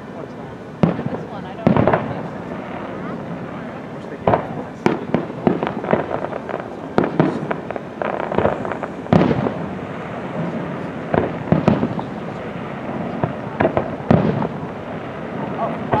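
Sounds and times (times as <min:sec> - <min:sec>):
fireworks pops and crackles: 0:00.0 - 0:16.0
loud fireworks bangs: 0:00.0 - 0:16.0
fireworks shells bursting: 0:04.0 - 0:16.0.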